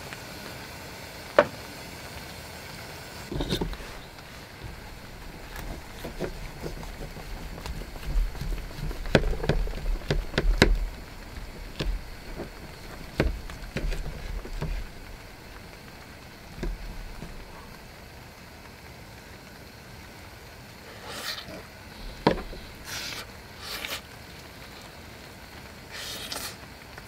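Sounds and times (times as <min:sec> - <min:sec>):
knife carving crackling chicken skin: 0:03.3 - 0:17.8, 0:25.9 - 0:26.6.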